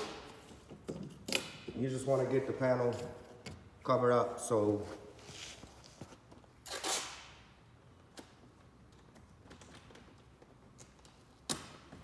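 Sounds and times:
masking tape ripping: 6.6s - 7.4s.

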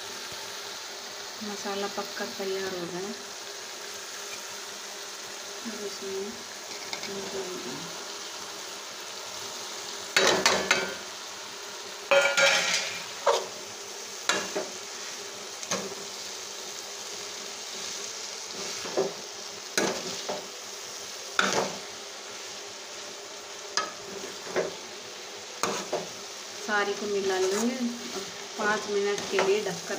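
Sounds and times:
food sizzling in pan: 0.0s - 29.9s.

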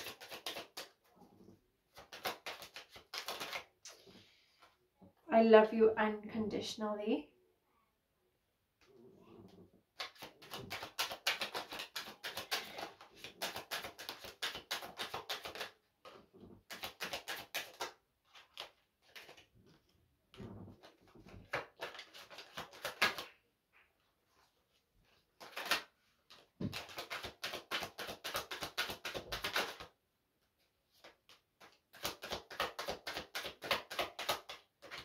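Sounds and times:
cards being shuffled: 0.0s - 1.1s, 1.9s - 4.0s, 9.9s - 19.9s, 20.7s - 23.4s, 25.1s - 30.0s, 30.9s - 35.0s.

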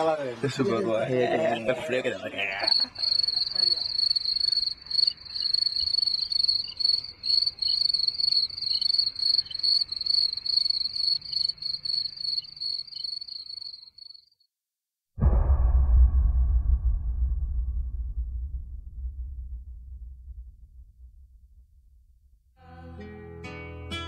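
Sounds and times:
cricket chirping: 2.4s - 14.5s.

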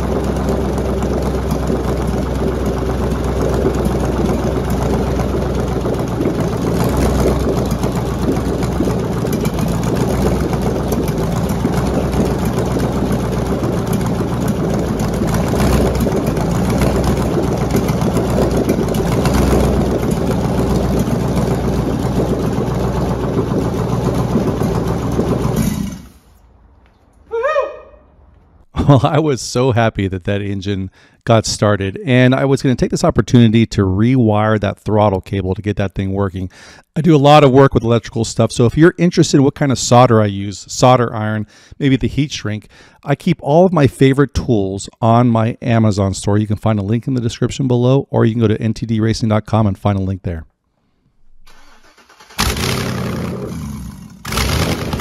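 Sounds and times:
engine running: 0.0s - 26.7s, 51.5s - 55.0s.

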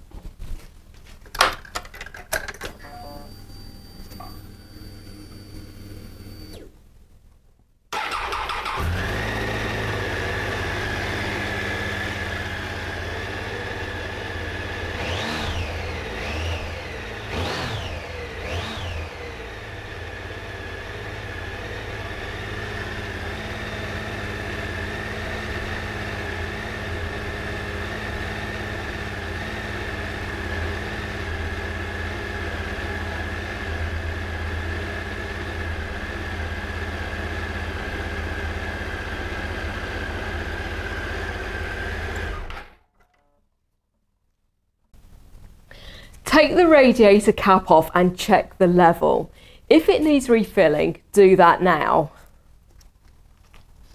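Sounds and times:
motorcycle engine starting and idling: 7.9s - 20.2s.

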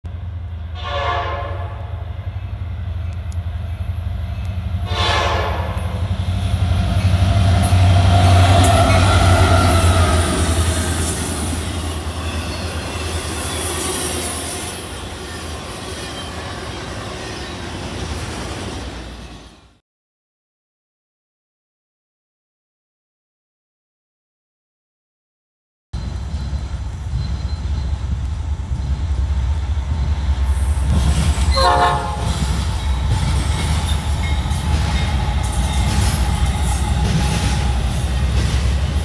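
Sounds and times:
train rumbling and clattering past: 0.1s - 19.8s, 26.0s - 39.0s
train horn blasts: 0.7s - 2.2s, 4.8s - 6.2s, 7.6s - 10.6s, 31.5s - 32.5s.

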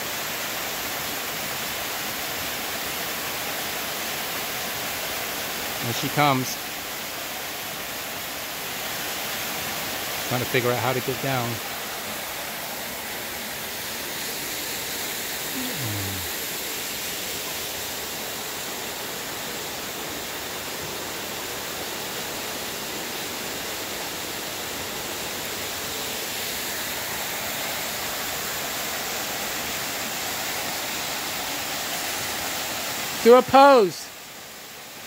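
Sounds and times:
waterfall pouring over rocks: 0.0s - 35.0s.

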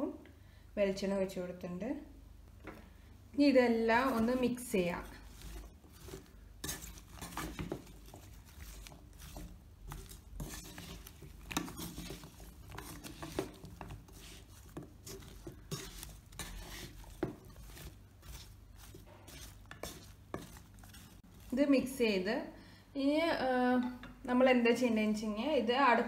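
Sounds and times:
wooden spatula scraping a pot: 3.6s - 22.2s.

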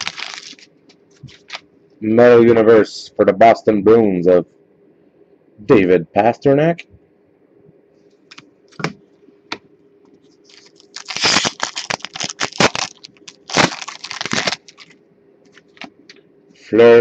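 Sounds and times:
wrapper tearing and crinkling: 0.0s - 1.6s, 10.5s - 15.0s.

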